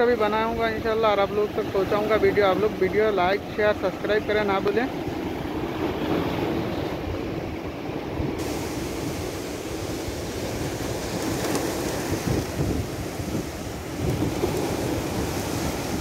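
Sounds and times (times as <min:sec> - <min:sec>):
wind buffeting microphone: 0:04.5 - 0:16.0
surf breaking over rocks: 0:08.2 - 0:16.0.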